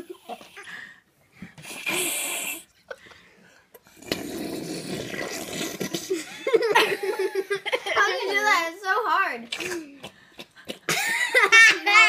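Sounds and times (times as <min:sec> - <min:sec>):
slurping through a straw: 0:01.6 - 0:02.7, 0:03.8 - 0:06.3.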